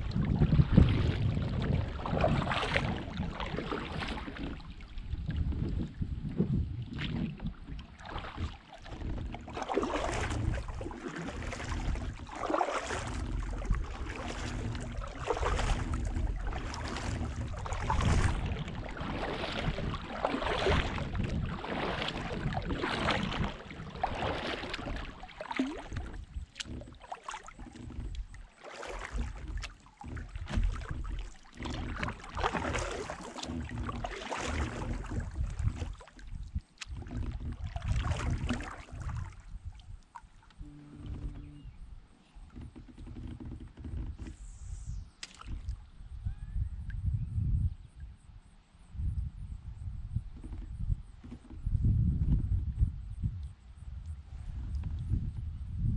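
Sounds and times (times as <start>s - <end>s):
paddle splashing in water: 0.0s - 46.0s
steady low rumble: 4.6s - 42.1s.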